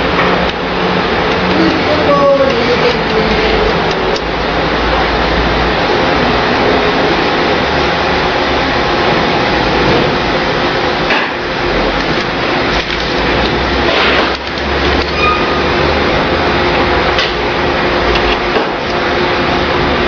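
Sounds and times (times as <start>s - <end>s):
electric card cutter running: 1.0s - 8.0s.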